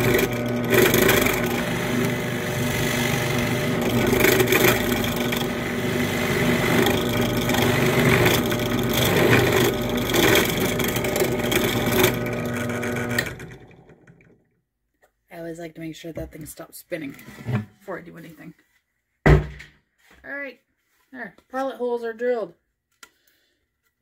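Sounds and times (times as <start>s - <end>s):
drill bit cutting wood: 0.0s - 14.2s
drill press motor humming: 0.0s - 14.4s.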